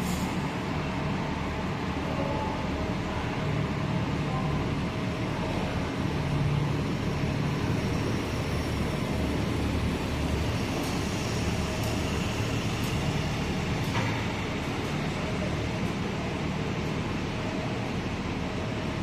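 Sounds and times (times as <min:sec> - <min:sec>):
bus engine rumbling: 0:00.0 - 0:19.0.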